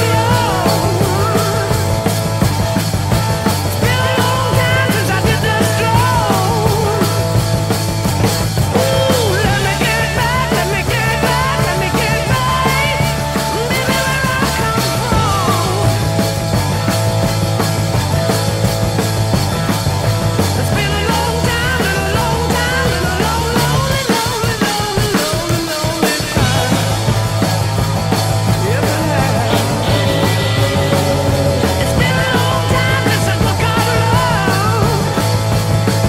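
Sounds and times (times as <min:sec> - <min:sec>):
rock music with drums: 0:00.0 - 0:36.0.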